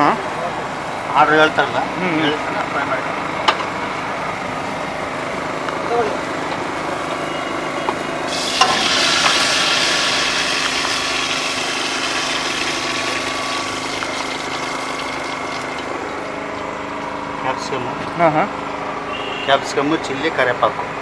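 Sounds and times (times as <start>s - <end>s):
hot oil sizzling in a wok: 8.3s - 16.6s.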